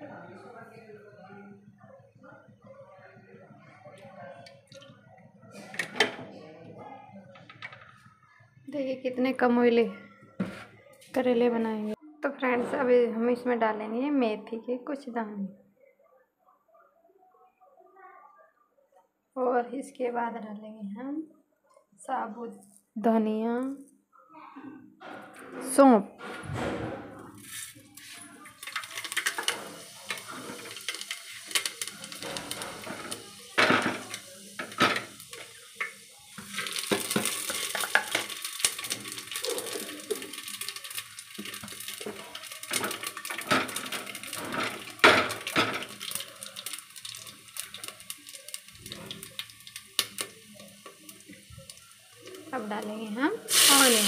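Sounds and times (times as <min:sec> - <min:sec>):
seeds sizzling in hot oil: 0:27.4 - 0:54.0.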